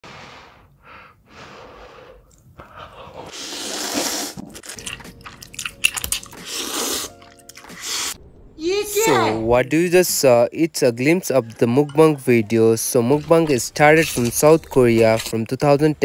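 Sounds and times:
noodles slurped: 3.1 - 8.2
chewing and crunching clicks: 4.4 - 7.9.

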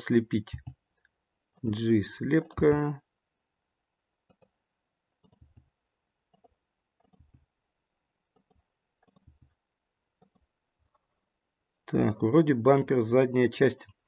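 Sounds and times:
faint computer mouse clicks: 4.3 - 4.5, 5.2 - 5.6, 6.3 - 7.4, 8.3 - 9.4.

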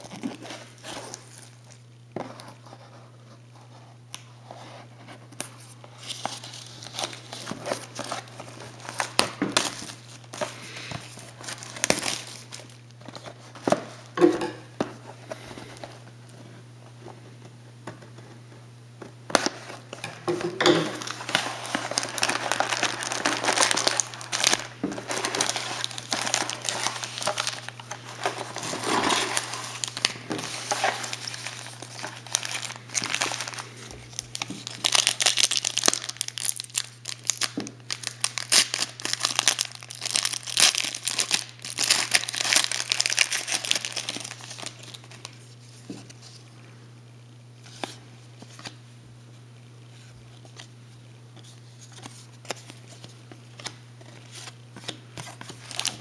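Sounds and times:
card pack wrappers crinkling and tearing: 0.0 - 2.8, 5.3 - 14.2, 19.3 - 46.4, 51.4 - 56.0
low steady hum: 0.0 - 56.0
cards being handled: 19.3 - 36.1.

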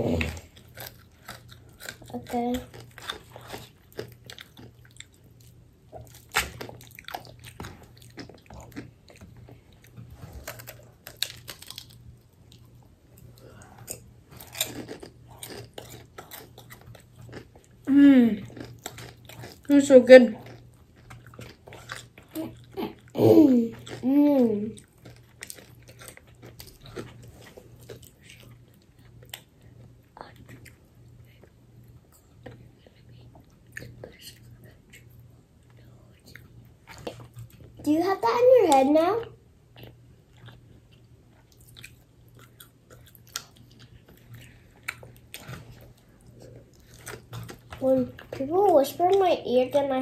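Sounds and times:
crunching and chewing fried chicken: 0.1 - 37.9, 39.6 - 49.3.

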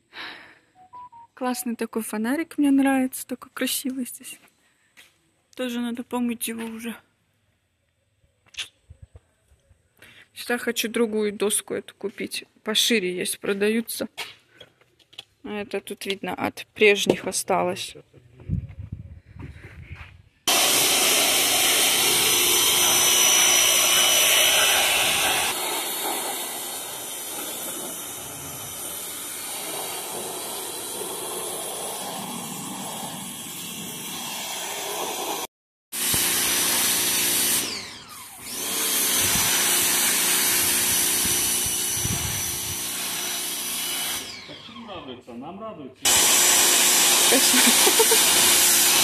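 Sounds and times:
pressure washer spraying: 20.5 - 37.8, 38.4 - 44.4, 46.1 - 49.0.

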